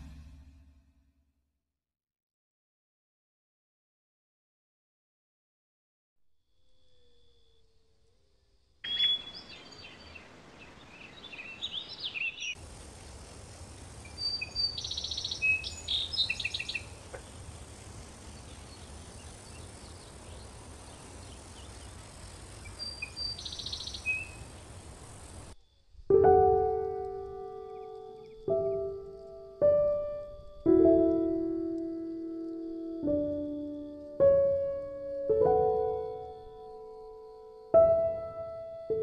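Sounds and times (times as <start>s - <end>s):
low rumble: 0.0s - 1.1s
steady hiss: 8.0s - 36.5s
birds chirping and trilling: 8.8s - 12.6s, 14.0s - 25.8s, 27.4s - 29.3s
piano music: 26.1s - 39.0s.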